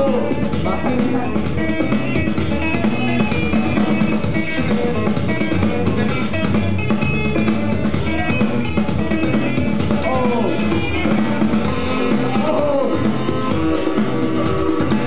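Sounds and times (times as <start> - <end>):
breakdance music with drums and guitar: 0.0 - 15.0.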